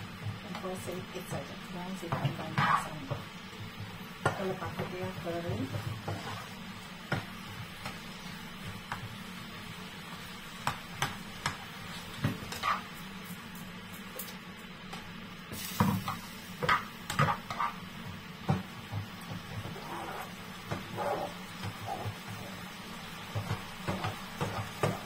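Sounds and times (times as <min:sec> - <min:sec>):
spatula knocking and scraping pan: 0:00.2 - 0:08.0, 0:12.2 - 0:12.9, 0:15.8 - 0:22.6, 0:23.2 - 0:25.0.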